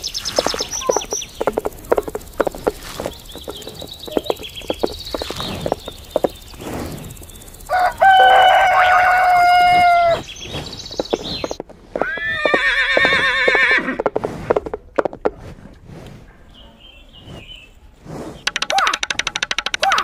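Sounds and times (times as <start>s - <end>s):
hoof clip-clop: 0.0s - 16.3s
rooster crowing: 7.7s - 10.2s
horse whinnying: 12.0s - 14.1s.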